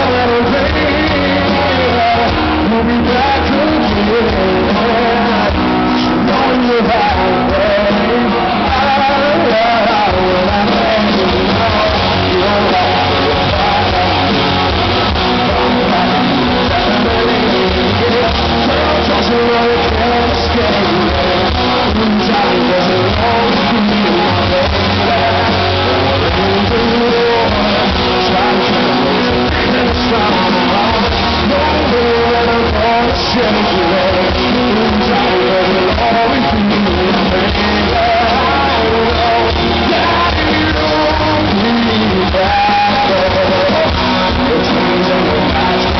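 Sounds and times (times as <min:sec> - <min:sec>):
electric guitar: 0:00.0 - 0:45.9
live rock band: 0:00.0 - 0:45.9
person singing: 0:00.0 - 0:45.9.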